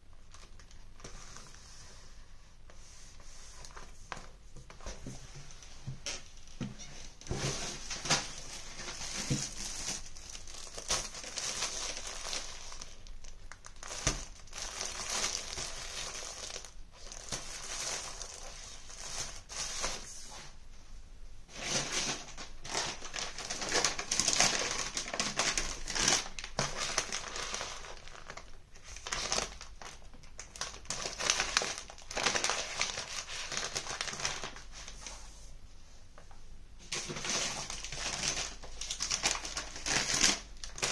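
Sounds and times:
packaging crinkling and rustling: 0.2s - 1.6s, 3.6s - 20.2s, 21.5s - 35.2s, 36.8s - 40.9s.

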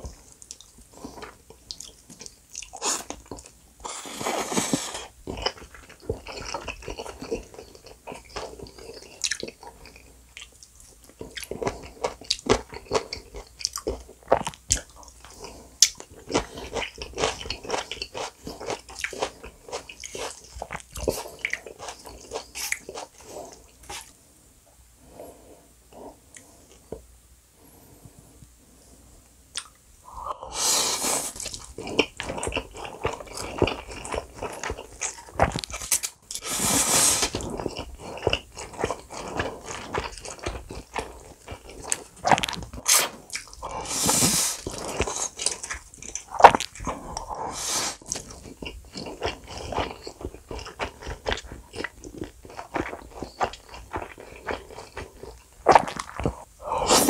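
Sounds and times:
wet chewing and mouth clicks: 0.0s - 24.1s, 29.5s - 29.8s, 31.3s - 57.0s
noodle slurping: 36.4s - 39.7s, 42.8s - 48.2s.

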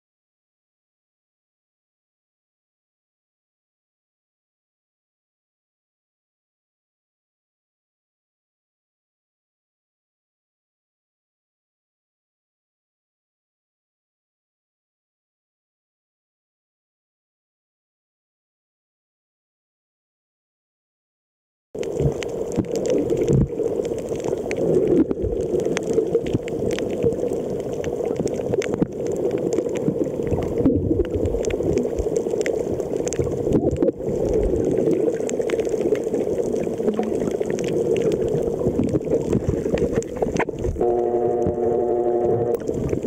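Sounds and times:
clicks and crackles: 21.8s - 41.6s
muffled underwater rush: 21.8s - 43.0s
low humming tone: 40.8s - 43.0s.

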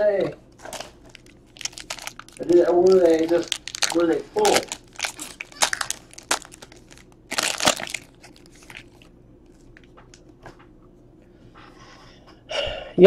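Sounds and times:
foil wrapper crinkling and tearing: 0.6s - 10.2s.

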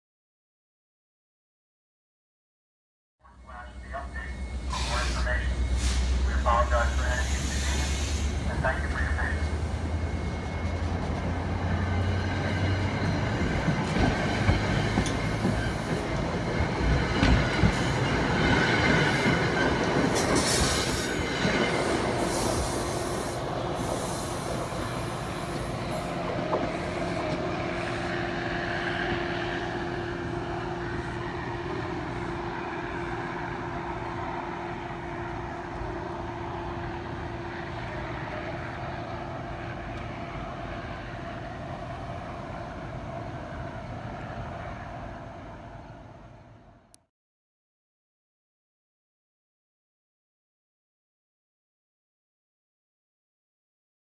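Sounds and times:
train wheels squealing: 4.4s - 8.4s, 9.3s - 16.2s.

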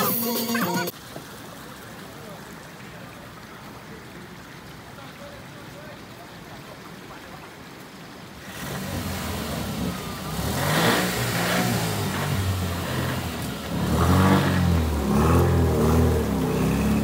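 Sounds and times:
water churning: 0.9s - 17.0s
buggy engine revving: 8.4s - 17.0s.

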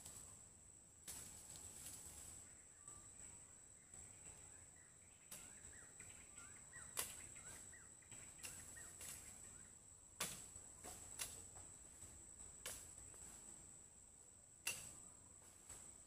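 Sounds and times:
high insect trill: 0.0s - 16.0s
bird chirps: 2.4s - 9.8s.

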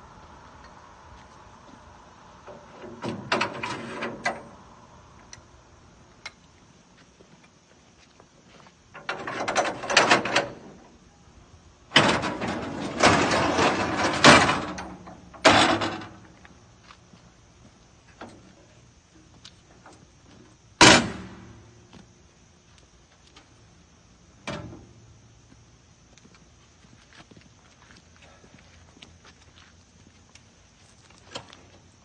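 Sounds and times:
metal ramp sliding and clattering: 2.5s - 4.6s, 9.0s - 10.8s, 11.9s - 16.3s.

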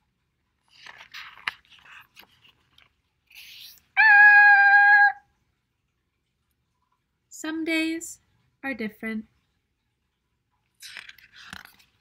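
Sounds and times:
paper page turning: 0.6s - 3.8s, 10.8s - 12.0s.

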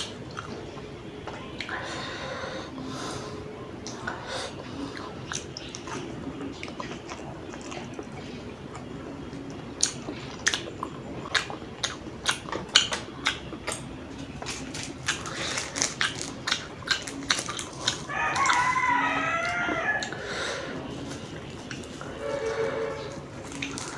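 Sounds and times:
chewing noodles mouth clicks: 5.0s - 8.9s, 9.8s - 18.7s, 23.4s - 23.9s
wavering squealing pitched sound: 22.1s - 23.3s.

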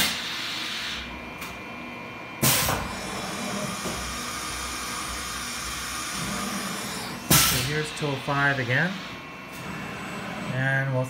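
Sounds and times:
pneumatic blast of tool change: 2.4s - 4.2s, 7.0s - 7.8s
milling machine hiss: 2.4s - 10.5s.

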